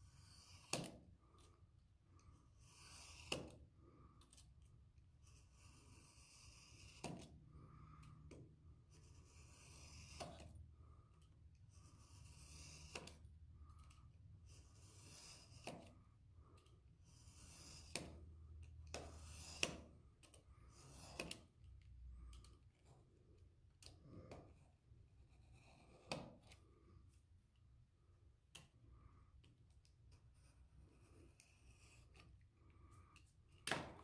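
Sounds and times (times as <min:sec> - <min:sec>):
craft knife scraping along ruler: 0:00.0 - 0:01.5, 0:02.3 - 0:03.7, 0:05.2 - 0:07.4, 0:08.0 - 0:10.6, 0:11.2 - 0:16.0, 0:16.6 - 0:21.6, 0:23.8 - 0:26.6, 0:30.1 - 0:32.4.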